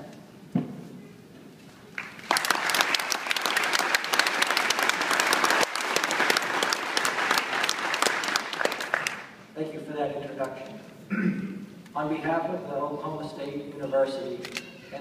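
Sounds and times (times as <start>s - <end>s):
audience applauding: 1.9s - 9.4s.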